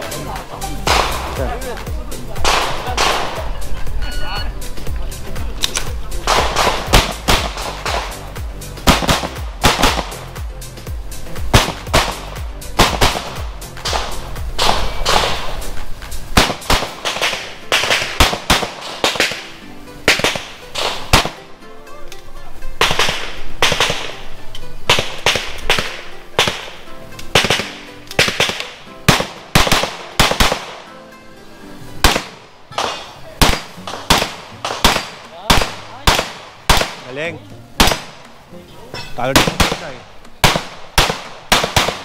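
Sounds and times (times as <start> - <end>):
pistol shots with echo: 0.9 - 1.4, 2.4 - 3.5, 5.7 - 10.2, 11.5 - 15.7, 16.4 - 21.4, 22.8 - 24.3, 24.9 - 30.9, 32.0 - 37.1, 37.8 - 38.2, 39.3 - 42.0.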